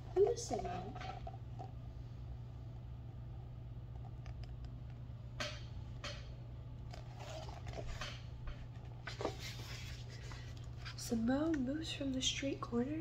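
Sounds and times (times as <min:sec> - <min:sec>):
steady low hum: 0:00.0 - 0:13.0
page turning rustle: 0:09.0 - 0:11.0.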